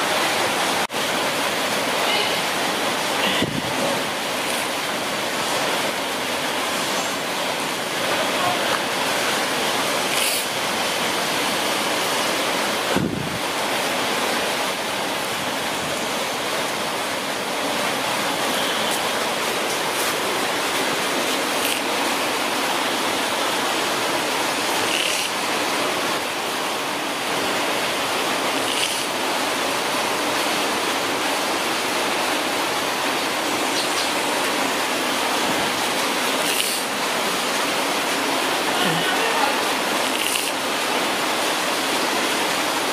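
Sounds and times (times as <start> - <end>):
steady rushing hiss: 0.0 - 42.9.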